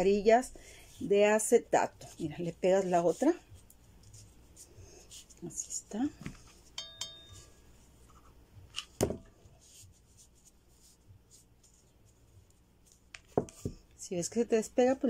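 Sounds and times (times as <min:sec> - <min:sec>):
brief ringing clink: 0:06.8 - 0:07.4.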